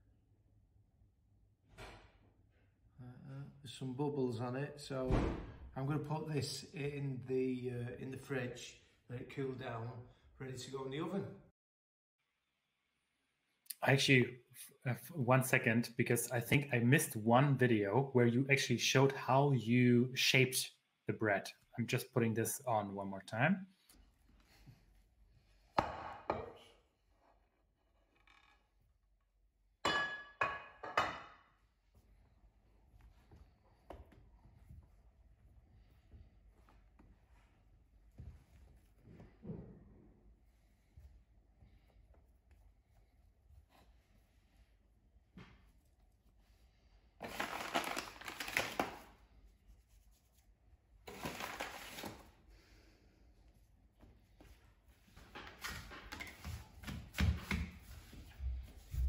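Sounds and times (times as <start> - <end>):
dough rustling and crinkling: 45.2 - 52.4.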